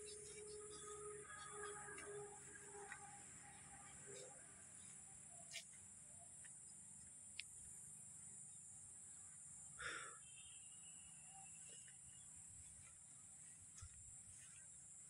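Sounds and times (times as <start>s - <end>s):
high-pitched insect drone: 0.0s - 5.7s.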